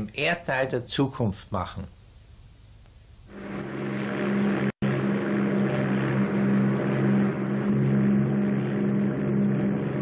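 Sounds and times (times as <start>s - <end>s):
engine drone: 3.3s - 10.0s.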